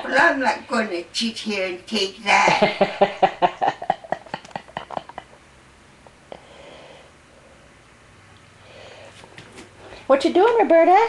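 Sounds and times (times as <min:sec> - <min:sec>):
person chuckling: 0:02.5 - 0:05.4.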